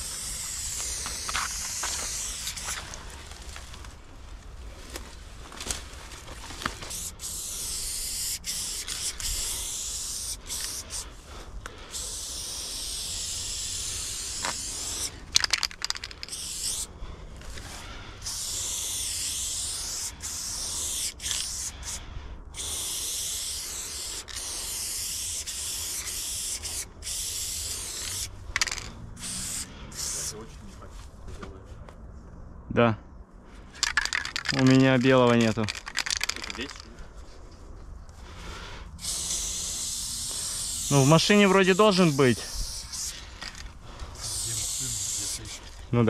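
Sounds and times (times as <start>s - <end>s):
spray paint can hissing: 0.0s - 3.0s, 6.8s - 16.9s, 17.5s - 30.4s, 33.8s - 36.8s, 38.9s - 45.8s.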